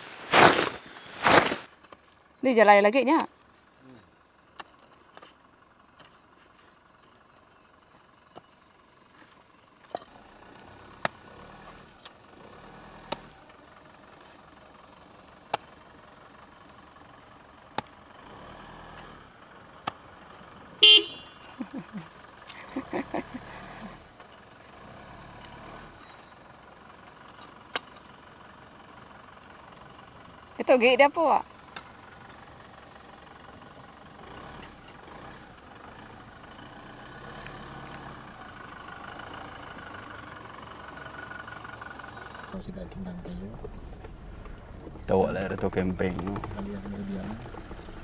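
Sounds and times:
digging tool striking stony soil: 0:00.0 - 0:01.7
insect drone: 0:00.0 - 0:48.0
vehicle horn toot: 0:20.8 - 0:21.6.

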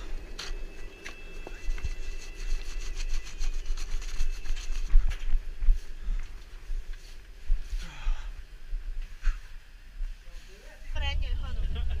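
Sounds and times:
footsteps crunching on snow: 0:00.0 - 0:08.1.

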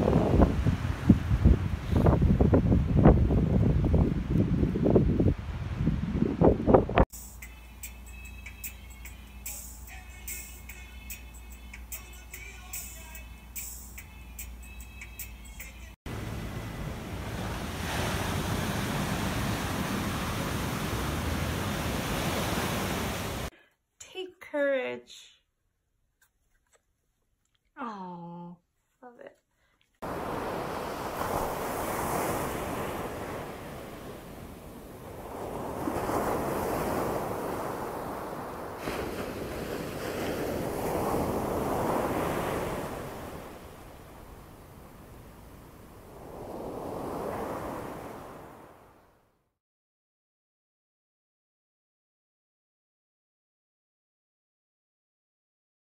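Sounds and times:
wind rumble on the microphone: 0:00.0 - 0:07.0
wind rumbling on microphone: 0:00.0 - 0:07.1, 0:30.1 - 0:48.8
music: 0:07.1 - 0:16.0
ocean waves washing onto beach: 0:16.1 - 0:23.5, 0:30.0 - 0:49.0.

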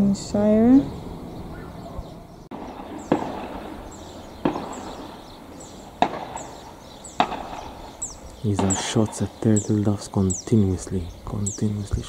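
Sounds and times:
distant shotgun shots: 0:02.5 - 0:09.4.

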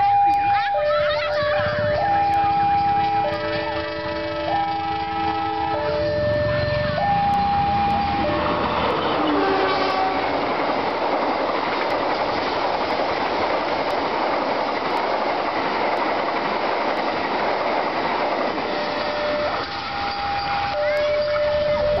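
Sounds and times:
diesel locomotive passing: 0:00.0 - 0:22.0
steel wheels rushing on rails: 0:00.0 - 0:22.0
train horn: 0:03.3 - 0:10.6.

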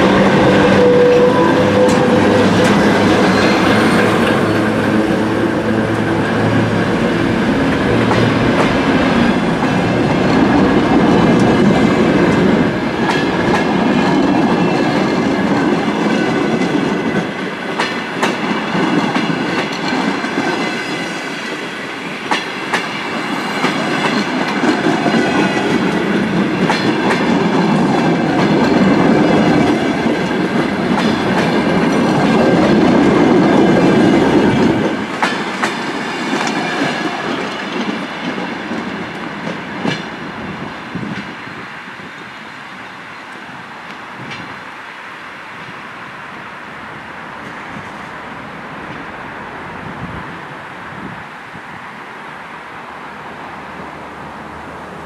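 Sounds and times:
wheels clicking over rail joints: 0:00.0 - 0:20.8, 0:22.3 - 0:41.4
train cars rolling past: 0:00.0 - 0:55.0.

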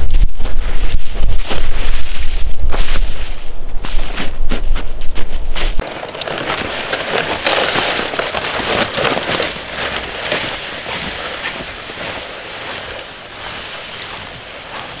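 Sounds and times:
snowshoes crunching through snow: 0:00.0 - 0:15.0
sled sliding on snow: 0:05.6 - 0:15.0.

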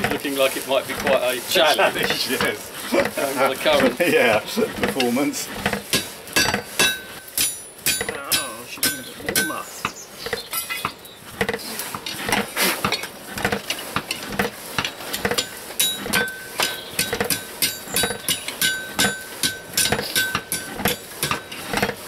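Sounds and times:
hammer striking steel on anvil: 0:05.9 - 0:09.9, 0:14.8 - 0:21.6
anvil ringing: 0:06.0 - 0:09.7, 0:15.4 - 0:21.6.

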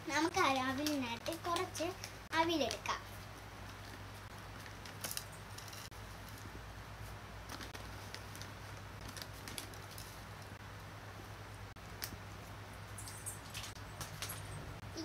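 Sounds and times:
plastic bag rustling: 0:03.6 - 0:10.6
rice flakes crackling: 0:03.6 - 0:10.6.

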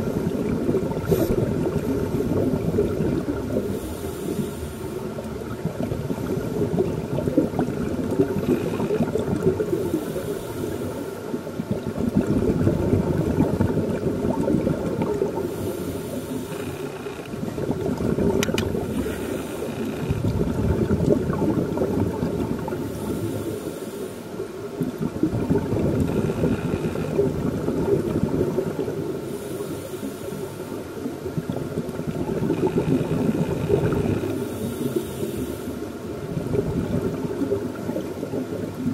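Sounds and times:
bubbling exhale: 0:00.0 - 0:24.2, 0:31.4 - 0:38.9
hissing regulator inhale: 0:01.0 - 0:02.2, 0:03.6 - 0:05.2, 0:08.3 - 0:11.4, 0:15.4 - 0:17.3, 0:18.8 - 0:20.2, 0:22.7 - 0:24.5, 0:29.2 - 0:31.0, 0:32.8 - 0:36.1.

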